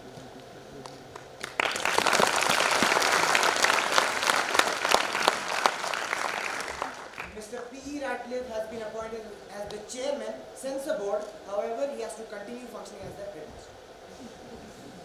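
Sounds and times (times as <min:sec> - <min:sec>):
audience applause: 0:01.1 - 0:07.4.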